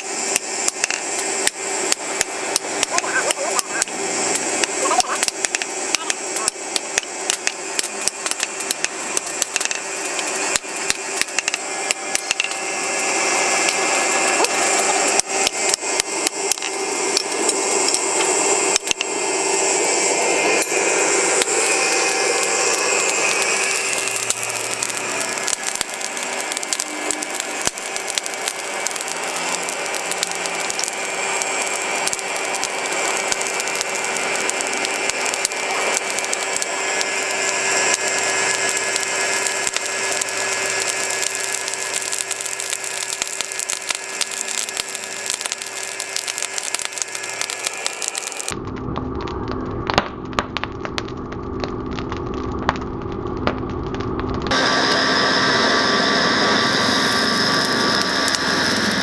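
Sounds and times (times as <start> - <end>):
forge air blower whine: 0.0 - 59.0.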